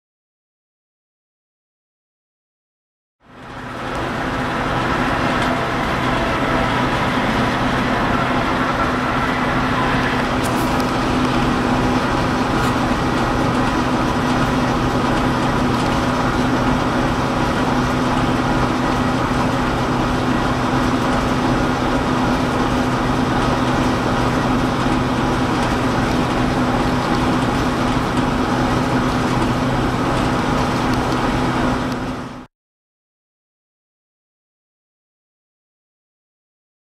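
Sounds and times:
blizzard wind and blowing snow: 3.2s - 32.5s
constant low hum: 3.3s - 32.3s
electric train passing: 3.3s - 32.3s.

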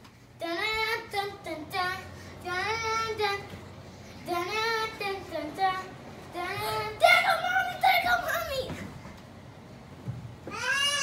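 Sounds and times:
child singing: 0.4s - 3.6s, 4.2s - 8.8s.

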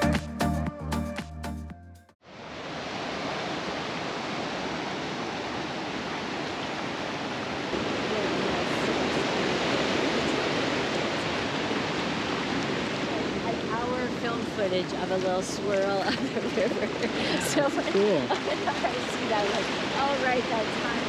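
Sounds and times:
river water rushing over a ford: 2.2s - 21.0s.

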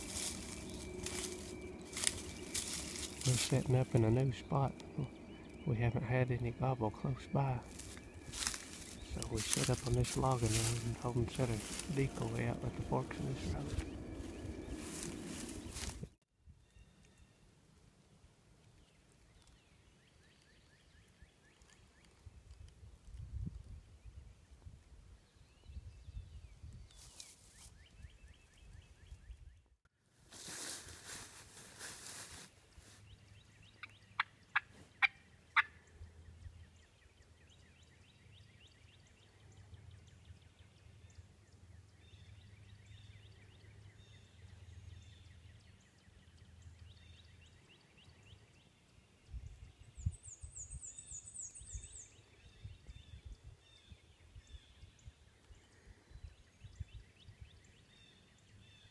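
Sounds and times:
small birds chirping: 0.0s - 16.0s, 32.1s - 58.9s
turkey gobbling: 33.8s - 35.8s.

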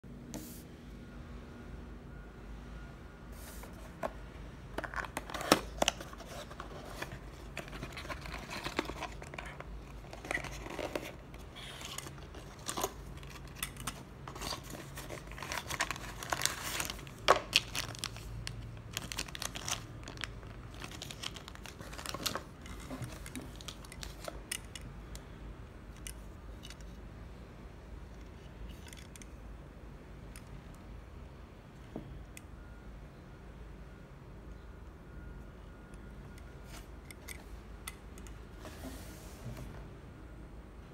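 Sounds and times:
cardboard box opened: 4.8s - 18.1s
packaging snaps and clicks: 4.8s - 24.9s
plastic bag crinkling: 7.6s - 24.2s.

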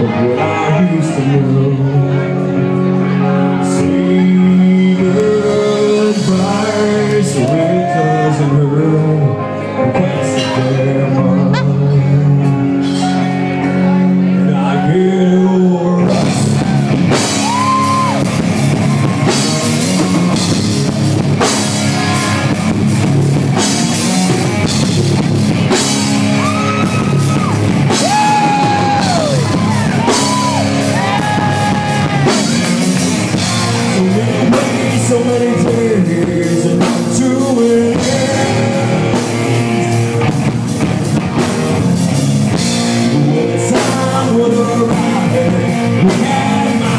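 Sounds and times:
person singing: 0.0s - 22.6s, 26.2s - 40.4s, 42.8s - 46.9s
electric guitar: 0.0s - 46.9s
drum kit: 3.3s - 9.1s, 16.0s - 46.9s.

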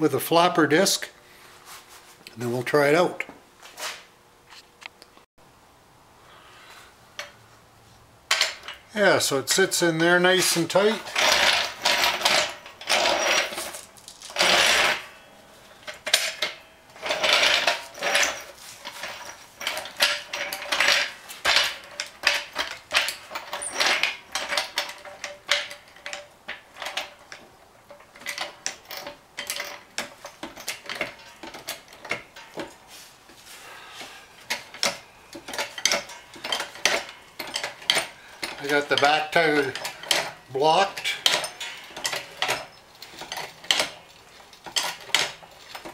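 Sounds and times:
floor jack clinking and rattling: 9.6s - 45.9s.

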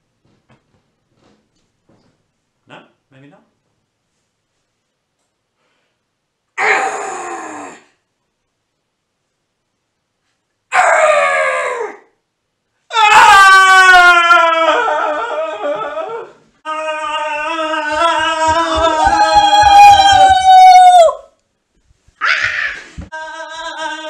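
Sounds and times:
people screaming in fright: 12.9s - 21.3s, 22.2s - 24.0s.

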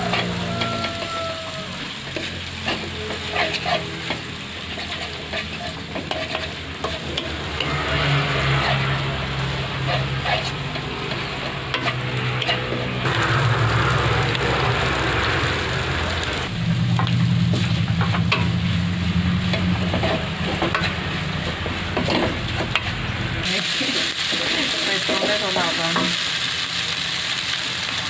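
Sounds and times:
noodles sizzling in a wok: 0.0s - 28.0s
spatula knocking and scraping pan: 2.1s - 9.1s, 9.7s - 13.0s, 19.5s - 23.0s.

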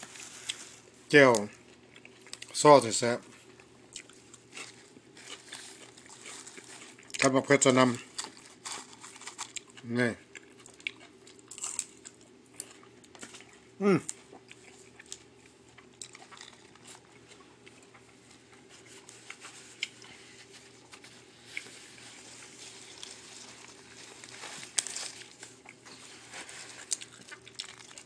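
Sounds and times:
person chewing and crunching food: 0.0s - 28.0s
small clicks and crinkles: 15.0s - 28.0s.

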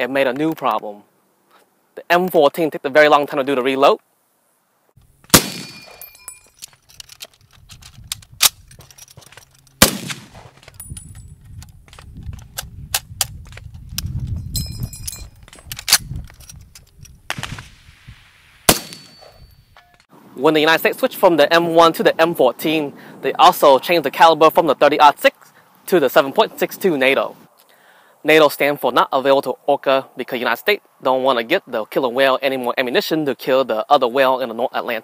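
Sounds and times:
rifle shots with echo: 5.3s - 6.0s, 9.8s - 10.5s, 18.7s - 19.3s
metallic clicks of rifle reloading: 5.3s - 14.1s, 15.0s - 17.2s.

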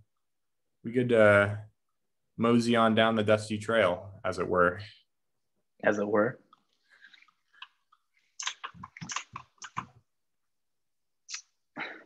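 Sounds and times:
computer keyboard typing: 8.4s - 10.0s.

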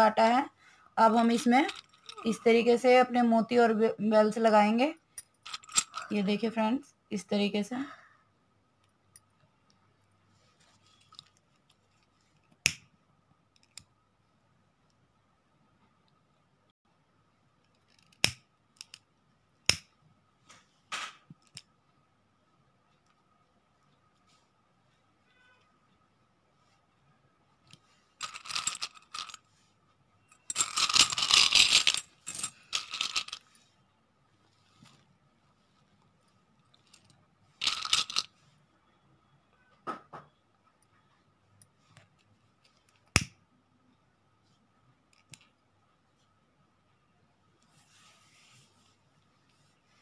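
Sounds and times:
handling plastic beads and cord: 1.1s - 3.2s, 5.2s - 6.4s, 27.6s - 29.7s, 30.3s - 33.7s, 34.6s - 38.4s.

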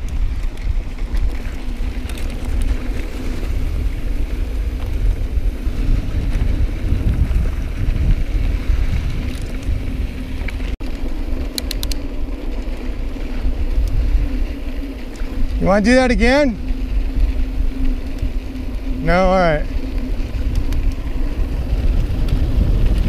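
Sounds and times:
bike tyres rolling on dirt: 0.0s - 23.0s
wind buffeting microphone: 0.0s - 23.0s
sharp ticks: 11.5s - 12.1s, 13.7s - 14.2s, 19.0s - 23.0s.

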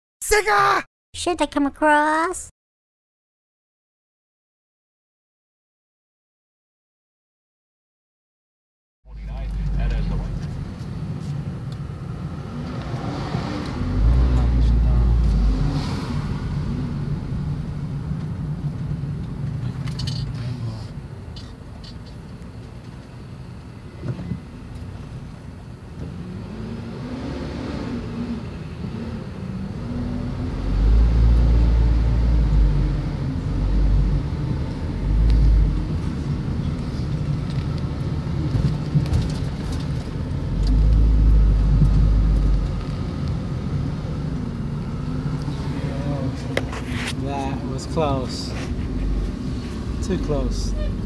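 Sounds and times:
deep engine rumbling surges: 9.1s - 19.8s, 26.2s - 51.0s
road noise: 9.1s - 51.0s
vehicle engine: 9.1s - 51.0s.

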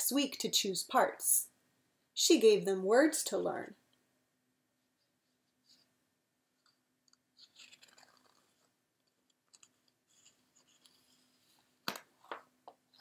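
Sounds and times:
paper pages rustling: 7.4s - 11.6s.

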